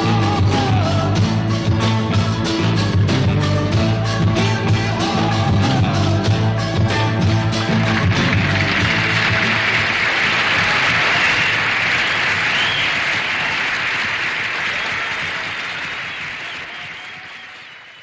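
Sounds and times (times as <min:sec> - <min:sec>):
rock song: 0:00.0 - 0:11.6
audience applauding: 0:07.5 - 0:18.0
whistle: 0:11.0 - 0:13.3, 0:16.0 - 0:18.0.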